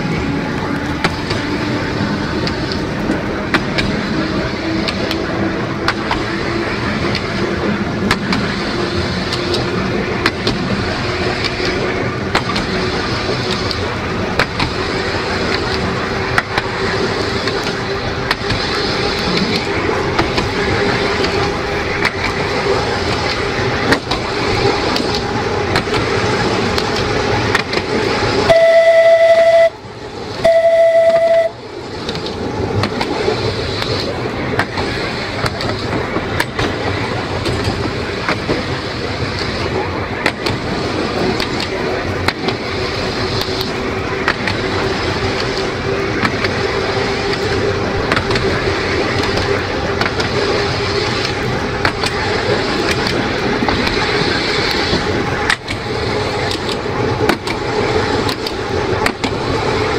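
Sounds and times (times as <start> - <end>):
wheels clicking over rail: 0.0 - 28.6, 30.4 - 59.9
electric tram humming: 0.0 - 59.9
tram horn blasts: 28.4 - 31.6.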